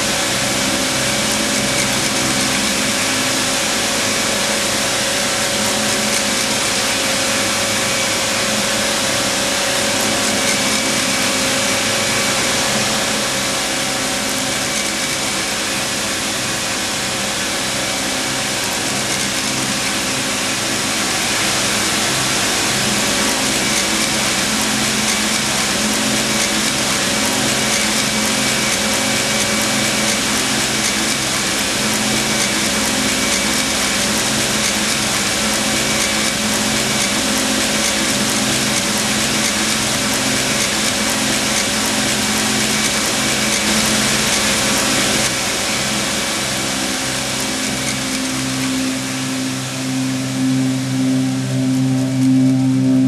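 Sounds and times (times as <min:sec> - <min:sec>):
knitting machine clattering: 0:18.3 - 0:45.9.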